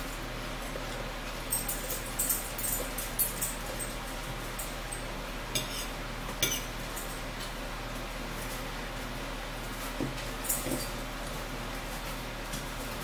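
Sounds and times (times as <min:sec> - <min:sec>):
fork scraping on plate: 0:05.6 - 0:06.7.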